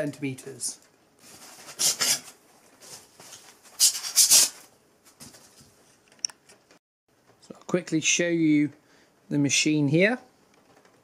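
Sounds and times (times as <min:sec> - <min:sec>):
polystyrene foam squeaking: 0:01.3 - 0:02.4.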